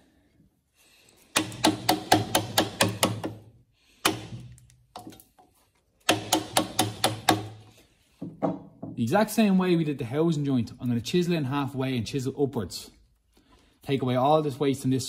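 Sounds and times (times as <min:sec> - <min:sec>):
wooden mallet striking a chisel: 0:01.3 - 0:05.2, 0:06.0 - 0:09.0.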